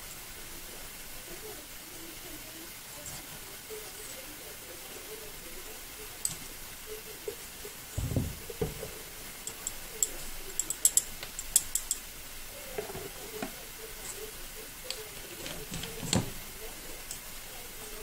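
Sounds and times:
glass bottle thud on counter: 8.0s - 9.0s
metal spoon clinking: 8.0s - 12.1s.

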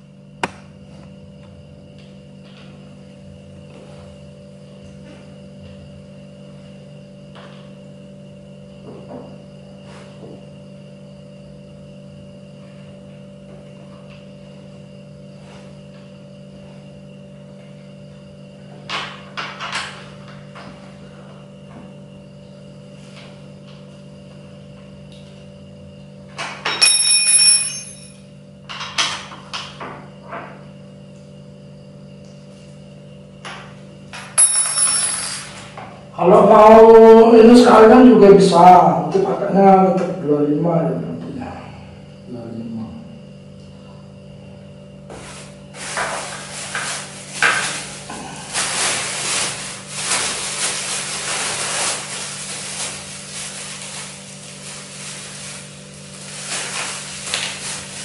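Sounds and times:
steady low hum: 0.0s - 26.3s.

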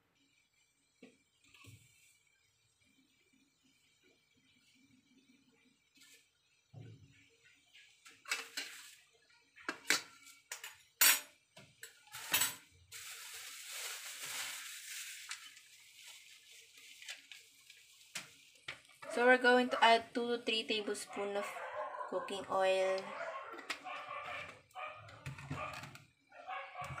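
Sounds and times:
hiss: 12.9s - 18.7s.

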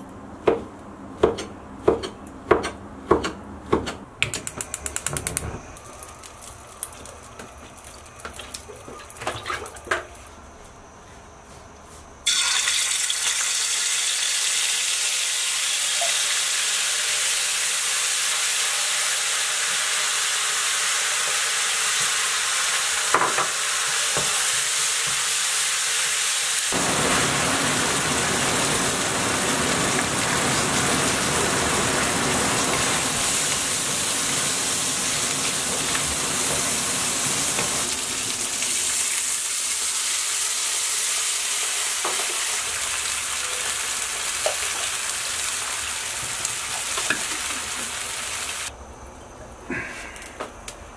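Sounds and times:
paste sizzling in hot oil: 12.3s - 48.7s.

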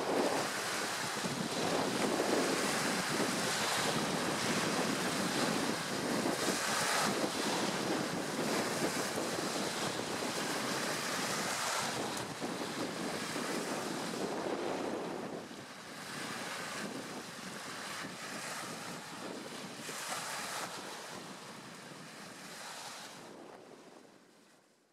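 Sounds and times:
wind gusting on microphone: 0.0s - 24.1s
waves washing and lapping: 0.0s - 24.7s.

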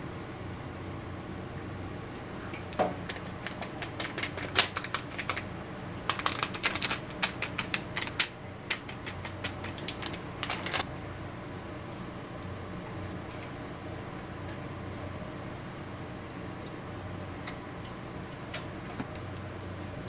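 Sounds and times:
plastic packet crinkling: 2.6s - 10.8s.

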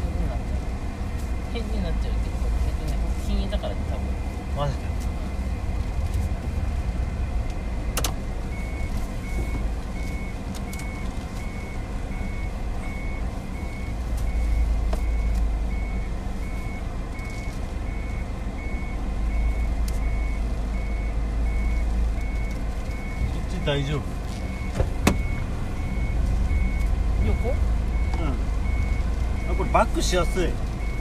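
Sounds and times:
car engine rumble: 0.0s - 31.0s
reverse warning beeps: 7.8s - 31.0s.

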